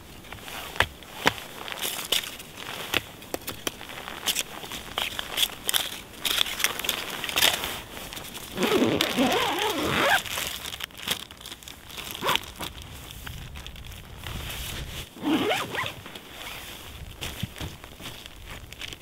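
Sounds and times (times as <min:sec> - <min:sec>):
tent zipper being pulled: 0:00.3 - 0:02.0, 0:06.5 - 0:10.6, 0:12.0 - 0:12.7, 0:14.2 - 0:17.1.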